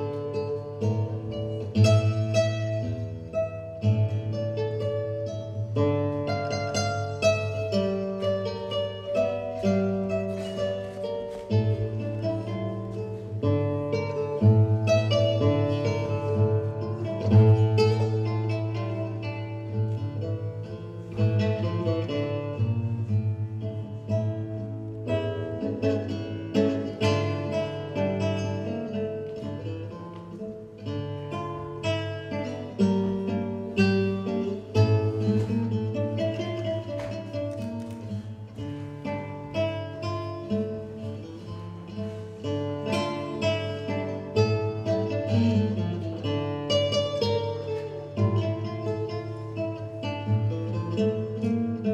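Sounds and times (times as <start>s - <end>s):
plucked acoustic guitar: 0.0s - 51.9s.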